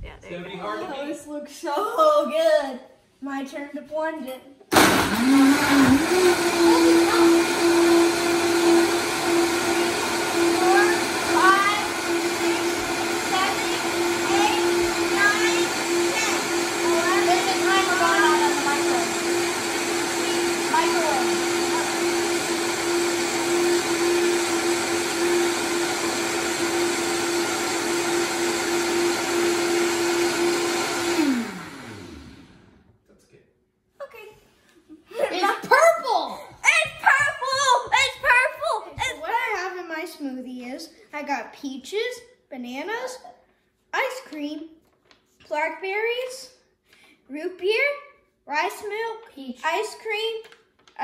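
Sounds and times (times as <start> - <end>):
blender running: 4.7 - 32.8.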